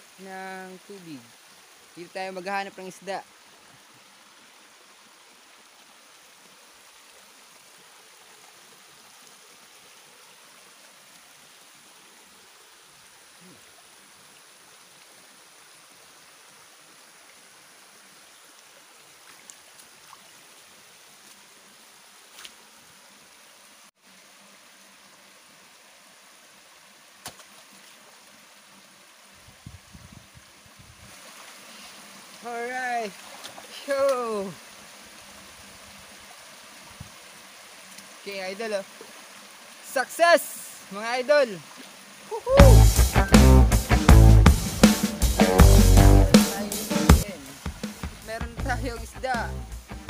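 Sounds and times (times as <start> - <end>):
shallow stream flowing: 0.0 - 50.0.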